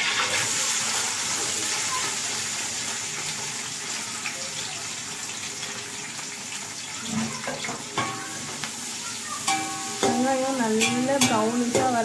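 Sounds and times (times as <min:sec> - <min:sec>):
onions sizzling in hot fat: 0:00.0 - 0:12.0
metal spatula clinking on pot: 0:09.5 - 0:12.0.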